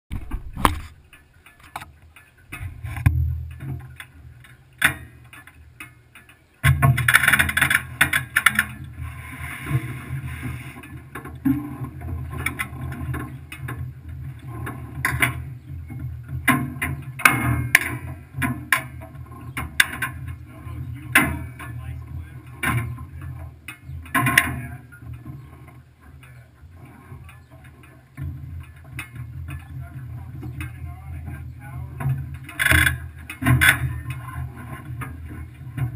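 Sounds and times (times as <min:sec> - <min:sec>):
camera mount knocks and clicks: 0:00.1 - 0:00.9.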